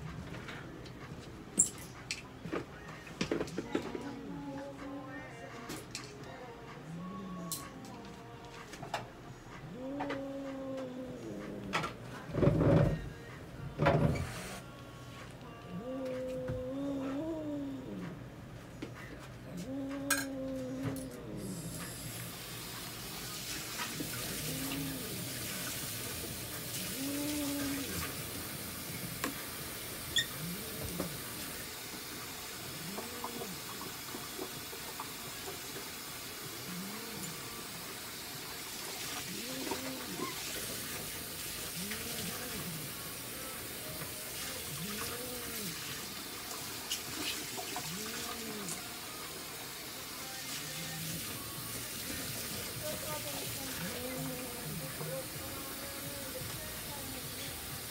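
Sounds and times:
cat meowing: 26.9 - 28.1.

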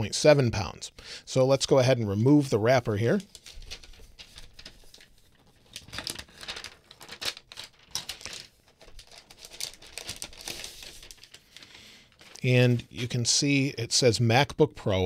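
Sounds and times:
plastic wrapper crinkling: 3.1 - 12.5.

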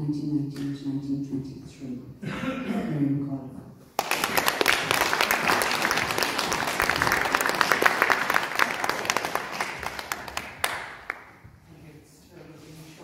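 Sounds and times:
audience applauding: 4.0 - 11.4.

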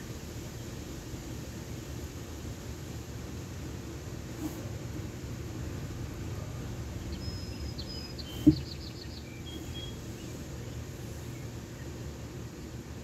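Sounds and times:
songbird calling: 7.0 - 12.0
short thump: 8.3 - 8.7.

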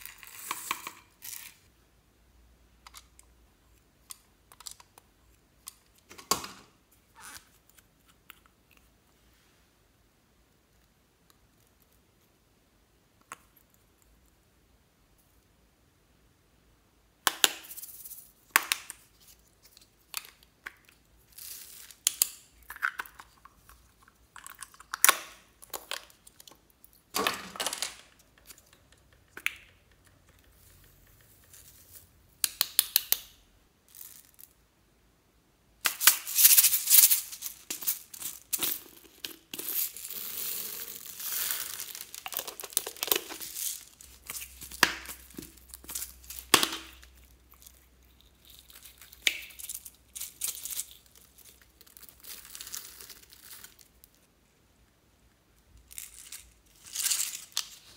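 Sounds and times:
plastic capsules clicking: 35.8 - 47.1
plastic bottle crinkling: 35.8 - 53.9
beads rattling into glass dish: 36.0 - 47.7.

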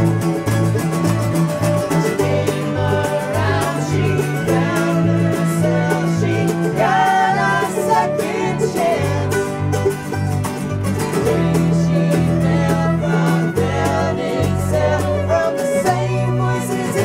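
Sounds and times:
bass line: 0.0 - 17.0
fiddle melody: 0.0 - 17.0
plucked strings: 0.0 - 17.0.

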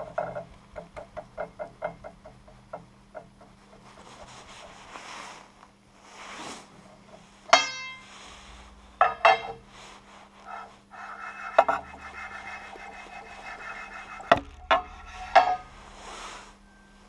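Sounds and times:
metal straightedge scraping rub: 10.4 - 16.6.

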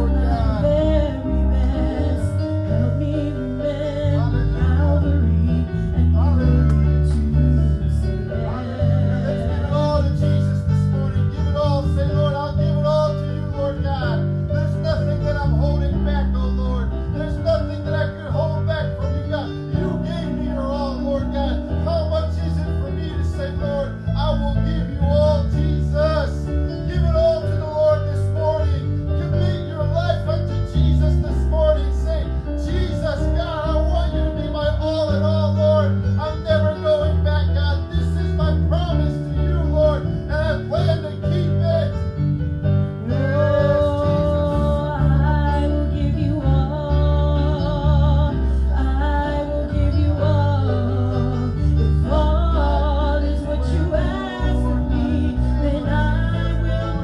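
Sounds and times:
woman singing into a microphone: 0.0 - 7.8, 43.1 - 57.0
band with guitar and bass: 0.0 - 57.0.

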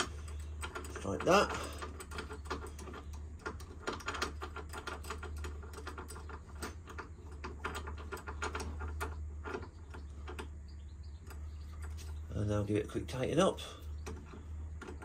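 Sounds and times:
metal chain clicks and rattles: 0.0 - 10.5
steady low hum: 0.0 - 15.0.

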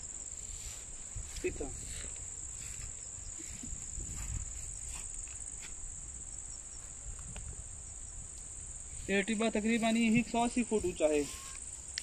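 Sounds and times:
insects shrilling: 0.0 - 12.0
faint ticks: 6.8 - 7.5, 8.3 - 8.5, 11.4 - 12.0.

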